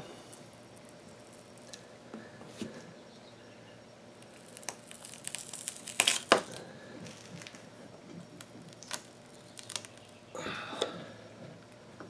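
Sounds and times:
tape crackling and tearing: 4.2 - 7.7, 8.4 - 10.2.

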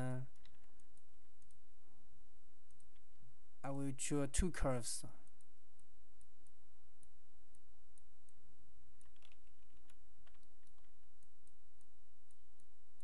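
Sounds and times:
computer mouse clicks: 0.3 - 1.6, 2.6 - 3.1, 5.2 - 13.0.

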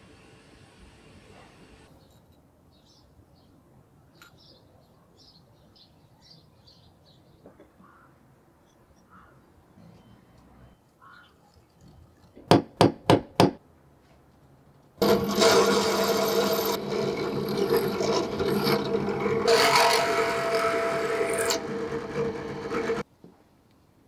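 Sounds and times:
drill bit cutting metal: 15.0 - 23.0
drill press motor humming: 15.0 - 23.0.

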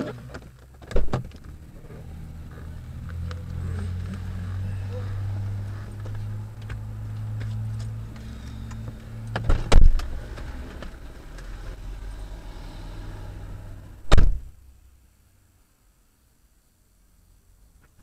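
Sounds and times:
car engine idling: 0.0 - 14.2
car door slamming: 0.8 - 1.3, 14.0 - 14.5
loud thuds: 14.0 - 14.6.

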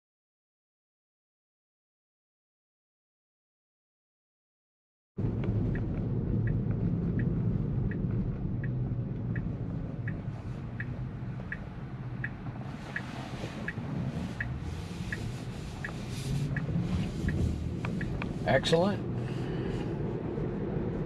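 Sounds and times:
road and tyre rumble: 5.2 - 21.0
turn signal ticking: 5.2 - 21.0.

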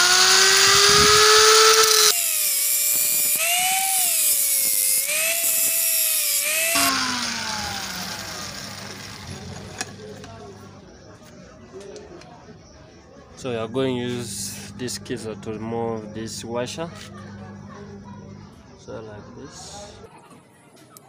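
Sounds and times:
angle grinder cutting metal: 0.0 - 10.6
grinder winding down: 0.0 - 10.9, 13.4 - 18.8.

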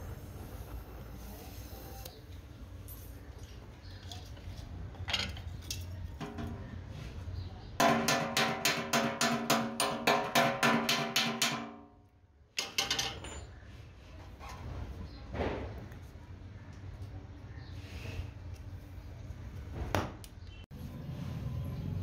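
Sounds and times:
hammer striking metal tank: 7.8 - 12.0.

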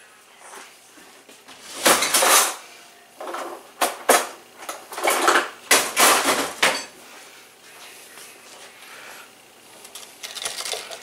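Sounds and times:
kitchenware clattering: 1.8 - 2.6, 3.2 - 7.0.

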